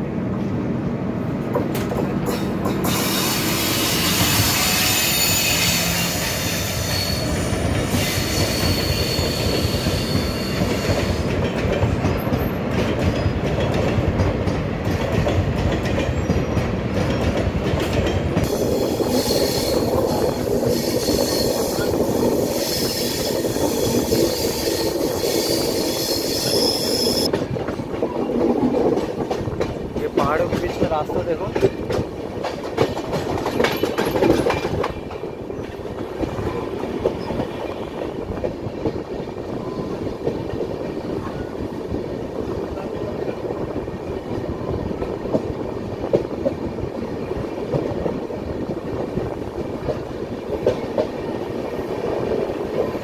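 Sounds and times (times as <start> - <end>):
train wheels clattering on rails: 1.4 - 53.0
high wheel squeals: 2.8 - 11.3, 18.6 - 27.3.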